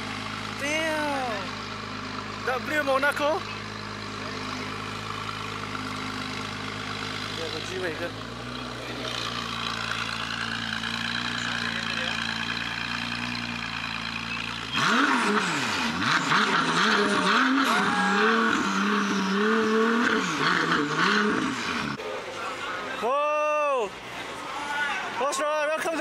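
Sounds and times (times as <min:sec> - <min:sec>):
car engine revving: 0:00.0 - 0:22.0
crowd noise: 0:03.4 - 0:12.9, 0:22.0 - 0:26.0.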